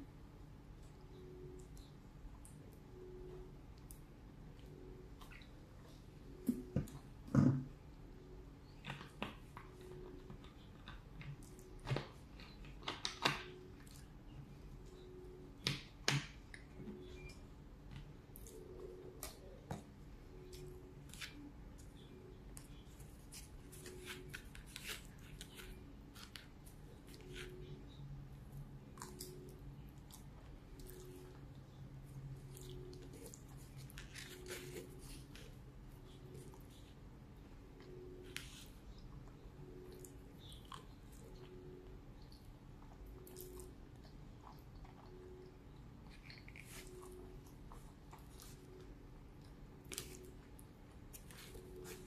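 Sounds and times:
person chewing food: 0:28.8 - 0:37.0, 0:37.7 - 0:52.0.

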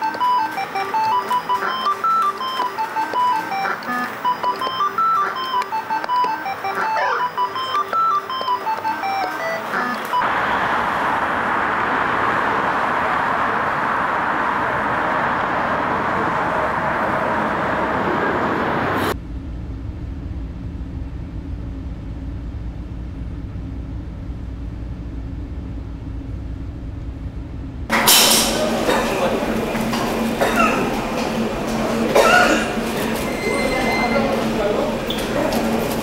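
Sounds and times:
street traffic hiss: 0:00.0 - 0:19.2, 0:27.9 - 0:36.0
low deep rumble: 0:19.1 - 0:27.9.

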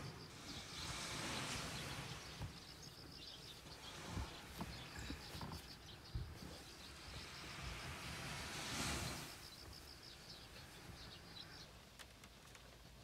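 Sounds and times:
low wind rumble: 0:00.0 - 0:12.0
insects chirping: 0:00.0 - 0:12.5.

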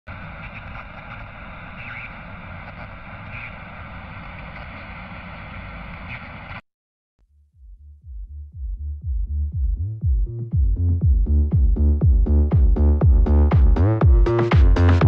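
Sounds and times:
electronic music with thudding beat: 0:07.6 - 0:15.0.

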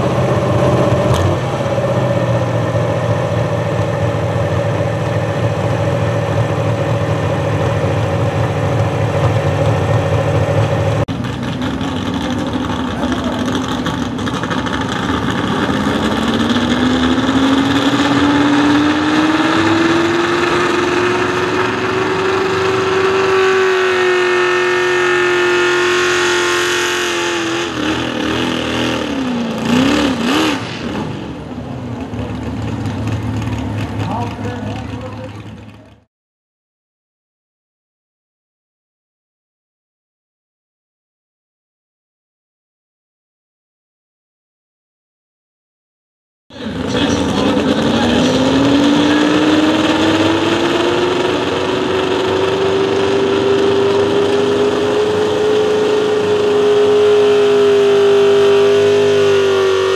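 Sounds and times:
truck engine fast idle: 0:00.0 - 0:17.6, 0:30.6 - 0:36.1, 0:46.5 - 0:53.6
truck engine revving: 0:00.0 - 0:36.1, 0:46.5 - 0:59.9.

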